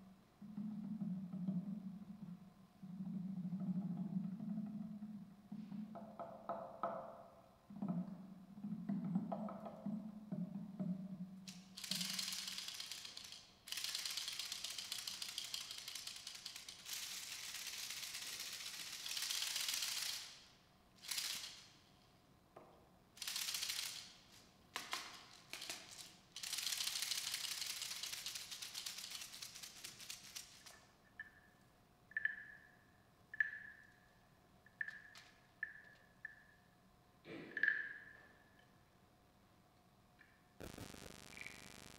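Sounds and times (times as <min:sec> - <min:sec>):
seed pod rattle shaking: 0:11.6 - 0:20.3, 0:25.2 - 0:30.8.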